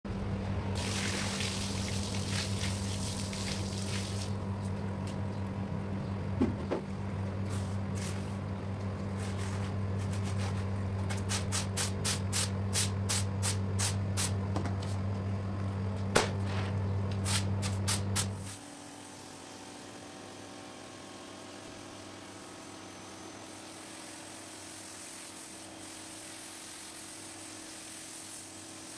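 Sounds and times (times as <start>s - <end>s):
low machine hum: 0.1s - 23.9s
water gushing from hose: 0.8s - 4.4s.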